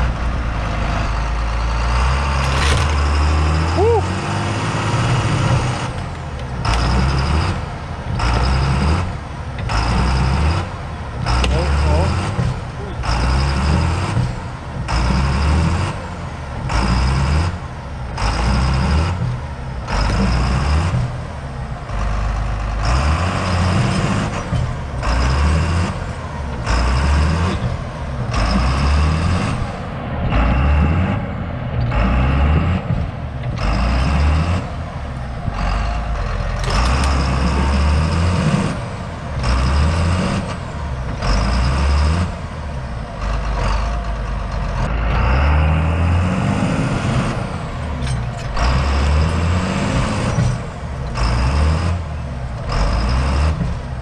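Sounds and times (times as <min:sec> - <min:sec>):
tractor engine under heavy load: 0:00.0 - 0:54.0.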